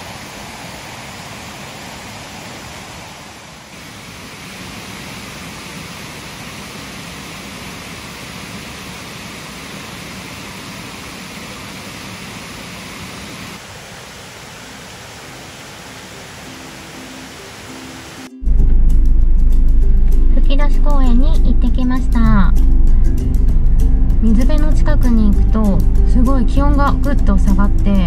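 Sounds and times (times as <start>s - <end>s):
water flowing in a stream: 0.0s - 18.3s
faint music: 15.9s - 28.0s.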